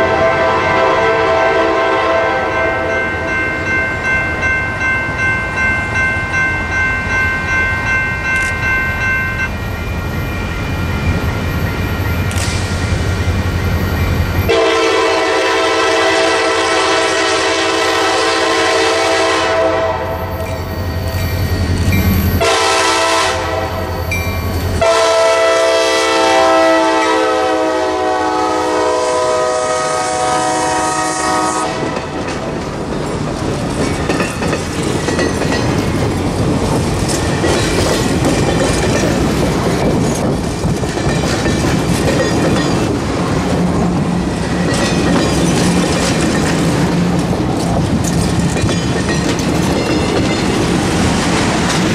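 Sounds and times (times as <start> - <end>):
locomotive air horn blasts: 0.0 - 3.0, 14.5 - 20.3, 22.4 - 24.0, 24.8 - 32.2
wheels clattering over rail joints: 31.9 - 51.9.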